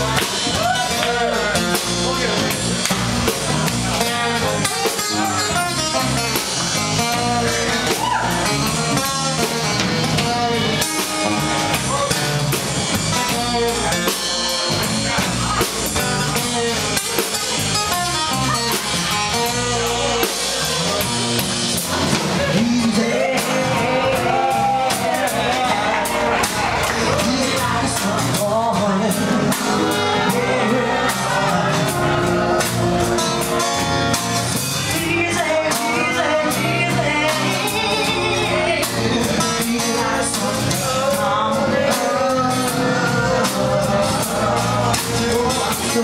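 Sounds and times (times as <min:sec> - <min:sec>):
acoustic guitar: 0:00.0 - 0:46.0
drum kit: 0:00.0 - 0:46.0
electric guitar: 0:00.0 - 0:46.0
woman singing: 0:34.9 - 0:46.0.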